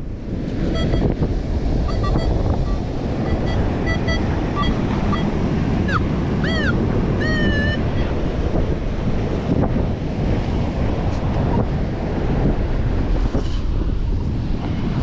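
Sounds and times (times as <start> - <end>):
water washing along shoreline: 0.0 - 15.0
wind buffeting microphone: 0.0 - 15.0
short high beeps: 0.7 - 1.2, 1.9 - 5.3
rising and falling chirps: 5.9 - 7.9.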